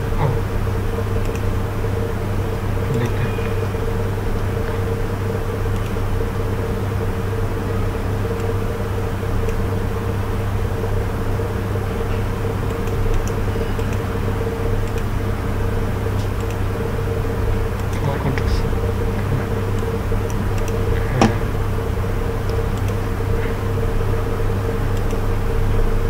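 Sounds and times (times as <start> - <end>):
higher steady tone: 0.0 - 26.0
mechanical hum: 0.0 - 26.0
faint clicks: 1.2 - 1.5, 5.7 - 6.0, 8.2 - 8.6, 12.7 - 14.0, 14.8 - 15.1, 16.2 - 16.6, 24.9 - 25.2.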